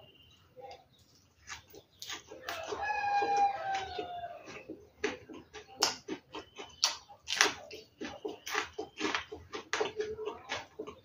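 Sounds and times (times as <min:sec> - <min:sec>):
wet chewing: 0:00.7 - 0:11.0
rooster crowing: 0:02.4 - 0:04.6
mouth smacks and clicks: 0:03.4 - 0:11.0.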